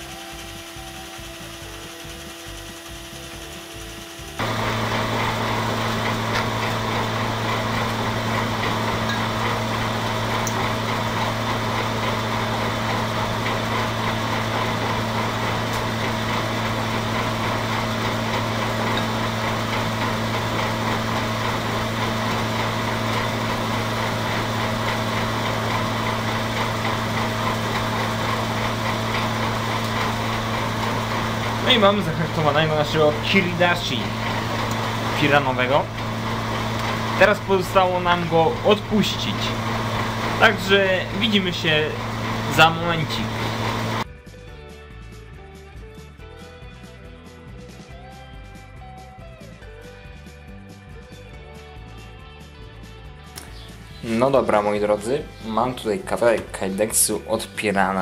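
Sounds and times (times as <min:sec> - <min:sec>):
forge air blower rushing: 0:00.0 - 0:44.1
rhythmic mechanical whirring: 0:00.0 - 0:44.1.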